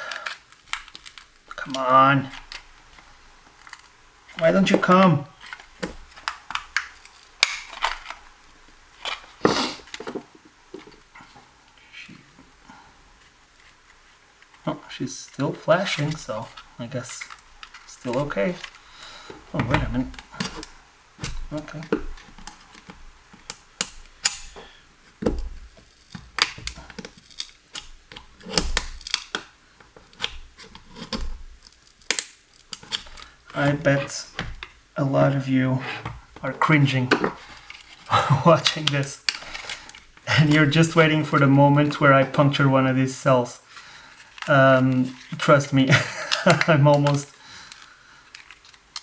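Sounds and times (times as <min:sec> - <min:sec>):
screwdriver prying plastic casing: 0:15.9 - 0:24.6, 0:25.2 - 0:29.5.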